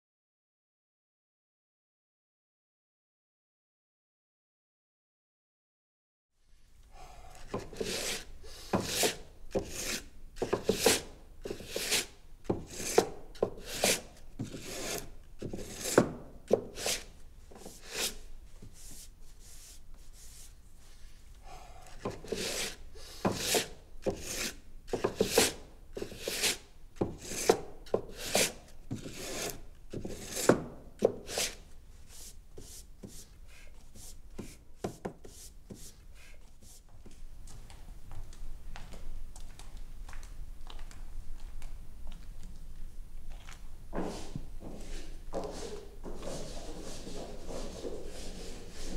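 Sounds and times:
sanding block rubbing wood: 7.6 - 16.1, 16.7 - 20.5, 22.2 - 26.6, 27.2 - 27.5, 28.1 - 30.6, 31.2 - 33.3, 46.3 - 48.9.

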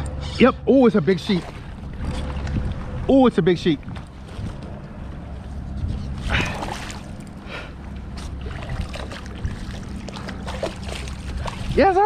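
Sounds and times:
low steady rumble: 0.0 - 12.0
water splashing: 0.8 - 4.7, 6.2 - 7.4, 8.1 - 12.0.

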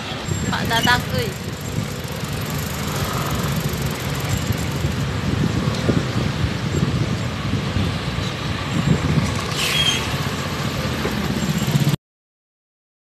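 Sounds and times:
city street traffic: 0.0 - 12.0
hissing squeal: 9.5 - 10.3.

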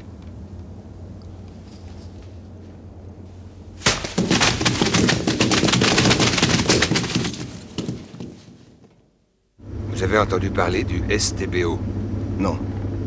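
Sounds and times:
rapid cracks and crackling: 3.8 - 9.0.

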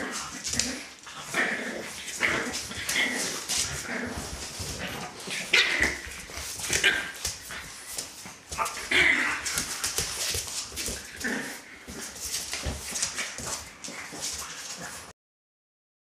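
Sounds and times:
dogs yipping and grunting: 0.0 - 10.2
paws scrabbling on hard floor: 0.0 - 15.1.

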